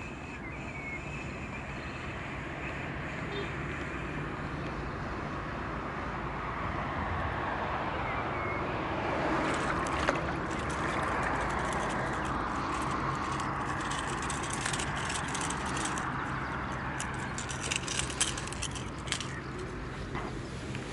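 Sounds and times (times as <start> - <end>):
fish flapping on concrete: 9.2 - 19.6
metal lure clattering on stone: 9.4 - 19.7.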